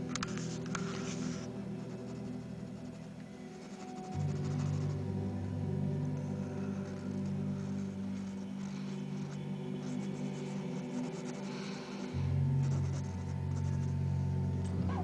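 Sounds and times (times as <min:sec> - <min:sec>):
low music drone: 0:00.0 - 0:15.0
pencil scratching on paper: 0:00.2 - 0:04.9, 0:09.8 - 0:11.8.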